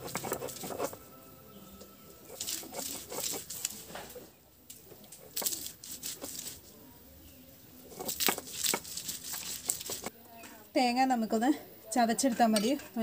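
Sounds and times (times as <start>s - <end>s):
stone roller crushing on grinding stone: 0.0s - 1.0s, 2.2s - 4.1s, 7.9s - 10.1s.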